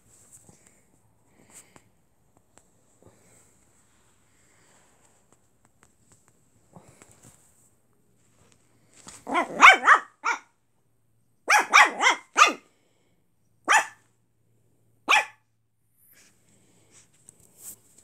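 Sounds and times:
puppy barking high yaps: 0:09.3 - 0:10.5, 0:11.4 - 0:12.6, 0:13.6 - 0:14.0, 0:15.1 - 0:15.5.

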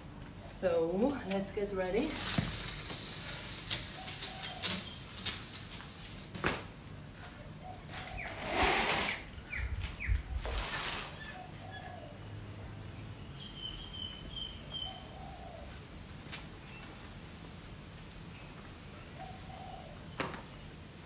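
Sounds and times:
rustling noise: 0:02.1 - 0:11.4
birds calling: 0:07.3 - 0:12.4, 0:13.2 - 0:15.8.

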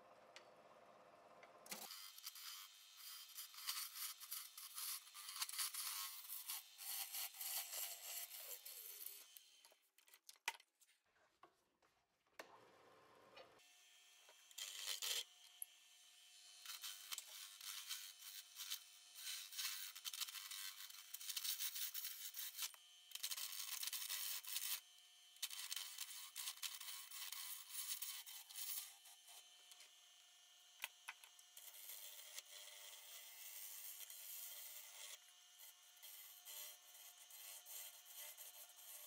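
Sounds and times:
lathe tool scraping wood: 0:01.7 - 0:09.5, 0:14.4 - 0:15.6, 0:16.4 - 0:29.5, 0:31.6 - 0:39.0.

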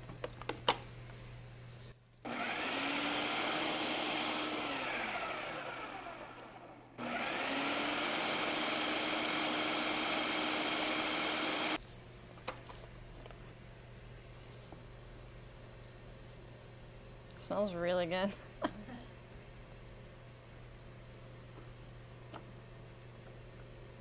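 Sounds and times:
food processor motor chopping: 0:02.3 - 0:11.8.

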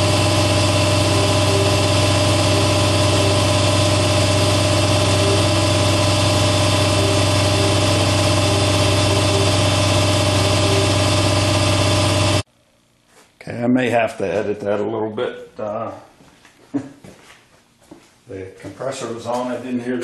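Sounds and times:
air compressor motor hum: 0:00.0 - 0:12.5.

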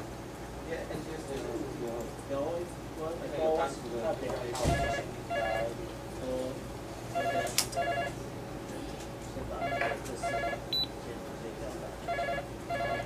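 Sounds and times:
card reader double beeps: 0:09.7 - 0:10.9.

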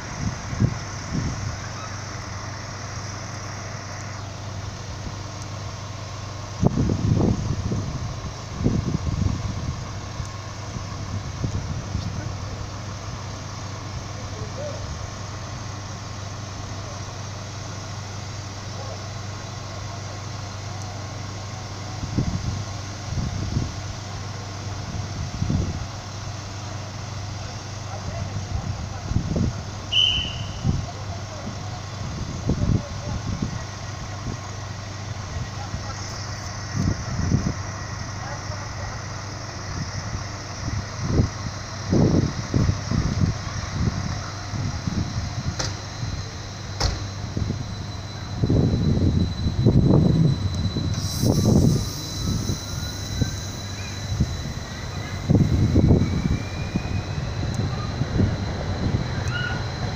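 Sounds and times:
low hum of train equipment: 0:00.0 - 0:59.9
wind buffeting microphone: 0:06.6 - 0:12.5, 0:48.3 - 0:59.9.

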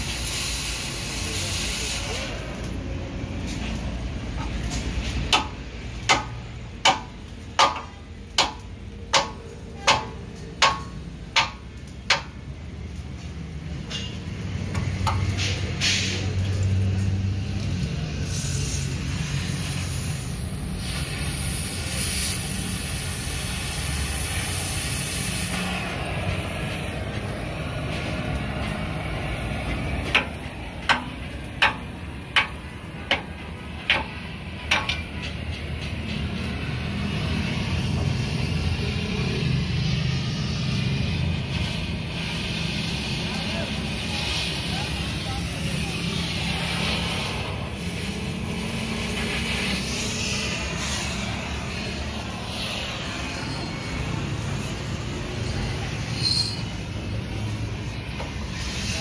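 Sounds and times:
gas cutting torch hiss: 0:00.0 - 0:07.0, 0:13.1 - 0:59.0
hammer striking steel frame: 0:04.4 - 0:12.5, 0:13.8 - 0:16.0, 0:29.7 - 0:36.7.

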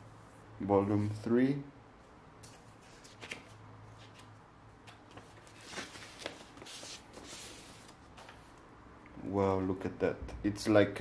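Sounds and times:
paper sleeve rustling and sliding: 0:05.2 - 0:08.4.

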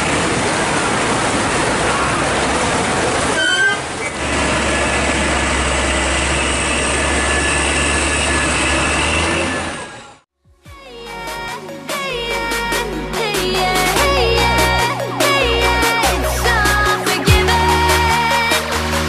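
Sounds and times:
heavy rain pouring: 0:00.0 - 0:09.8
truck diesel engine rumbling: 0:00.0 - 0:10.2.

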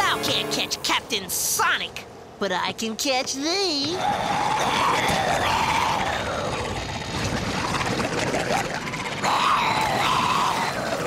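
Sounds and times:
creature roar: 0:03.9 - 0:11.0
churning waves: 0:04.4 - 0:11.0.

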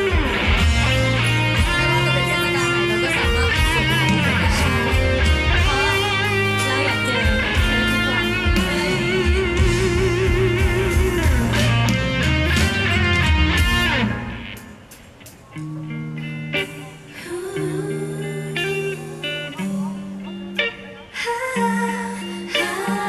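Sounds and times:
steady drum beat: 0:00.0 - 0:15.4
electric guitar: 0:00.0 - 0:23.0.

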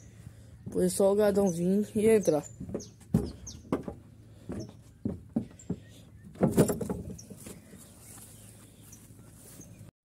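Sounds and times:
rattling clatter: 0:02.7 - 0:07.6.

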